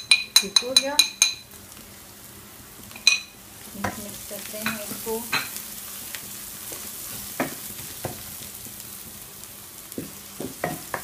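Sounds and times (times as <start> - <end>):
spoon knocking against pan: 0.0 - 1.4, 7.4 - 8.2, 9.9 - 11.0
onions and spices sizzling in a wok: 0.0 - 11.0.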